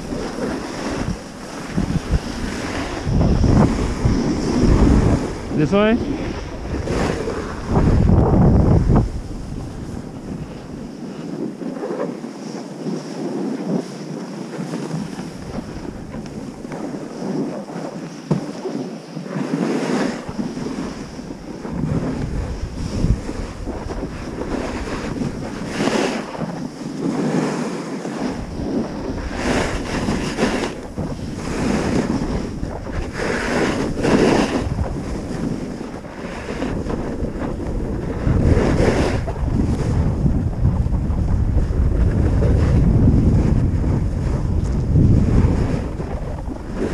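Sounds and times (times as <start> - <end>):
skis hissing on snow: 0.0 - 7.8, 16.8 - 37.6
ski edges scraping snow: 0.0 - 40.7, 41.6 - 46.9
wind buffeting microphone: 0.0 - 46.9.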